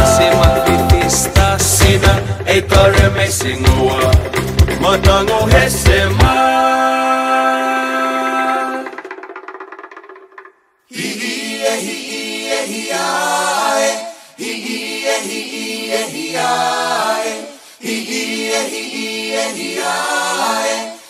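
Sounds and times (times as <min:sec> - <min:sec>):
voices singing in harmony: 0:00.0 - 0:09.1, 0:10.9 - 0:21.0
singers breathing: 0:14.0 - 0:14.4, 0:17.4 - 0:18.0.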